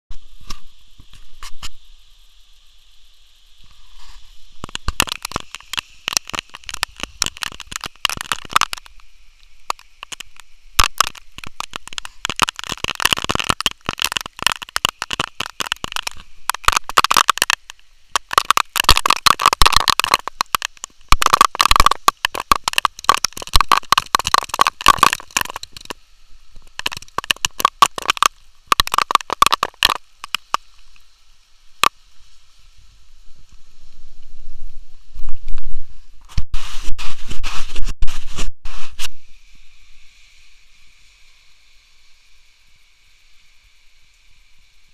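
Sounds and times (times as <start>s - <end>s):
faint hiss: 0.1s - 44.9s
raindrops clattering: 4.6s - 26.0s, 26.6s - 30.9s.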